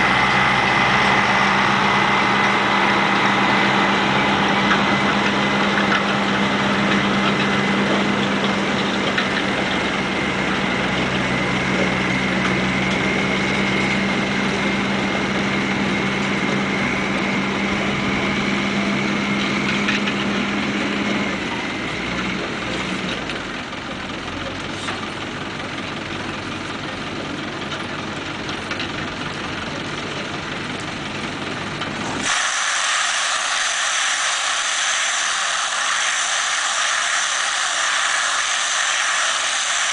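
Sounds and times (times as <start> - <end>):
tractor engine running: 0.0 - 39.9
steady hiss: 32.2 - 39.9.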